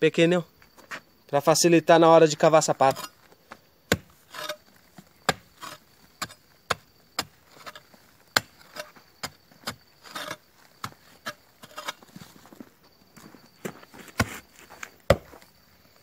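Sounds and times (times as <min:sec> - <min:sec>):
hoe chopping into hard soil: 0:03.9 - 0:04.6, 0:05.2 - 0:12.0, 0:14.0 - 0:14.4, 0:15.1 - 0:15.4.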